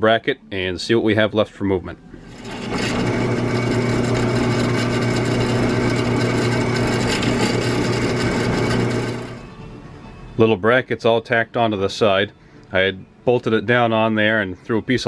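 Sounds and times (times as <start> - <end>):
drill press drilling steel: 2.2 - 9.4.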